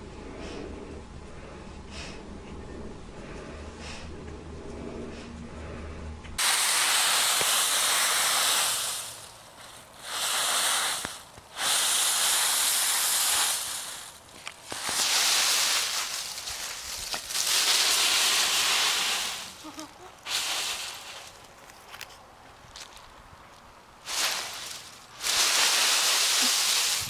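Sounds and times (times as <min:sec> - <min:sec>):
faint low hum: 0:00.0 - 0:06.4
dry leaves rustling and crunching: 0:06.4 - 0:27.0.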